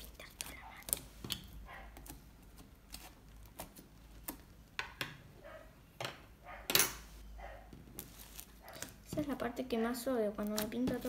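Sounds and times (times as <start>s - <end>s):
slime clicking and squishing: 0.0s - 4.6s, 10.1s - 11.0s.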